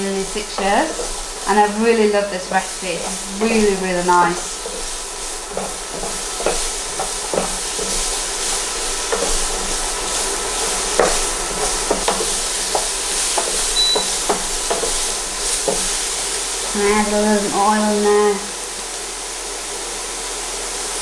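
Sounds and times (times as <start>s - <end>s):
utensil scraping in pan: 0.0s - 17.5s
vegetables sizzling in frying pan: 0.0s - 21.0s.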